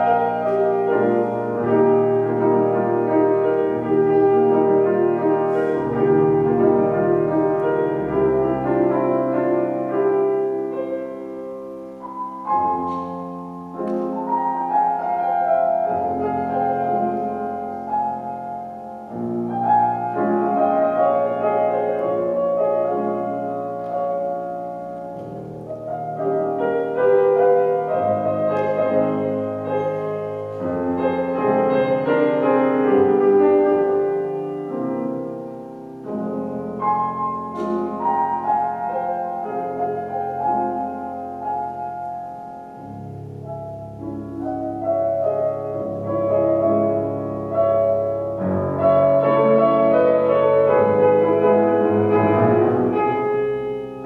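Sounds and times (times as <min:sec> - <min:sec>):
solo classical piano: 0:00.0 - 0:54.0.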